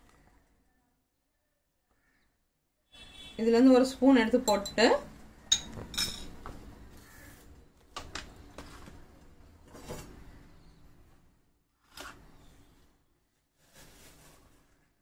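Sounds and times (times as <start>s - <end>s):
glassware and spoon clinking: 4.4s - 6.4s.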